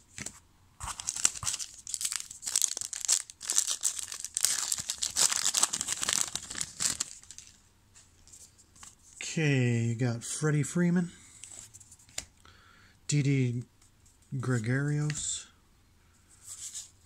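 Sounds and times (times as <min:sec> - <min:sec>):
foil wrapper crinkling and tearing: 0:00.8 - 0:07.6.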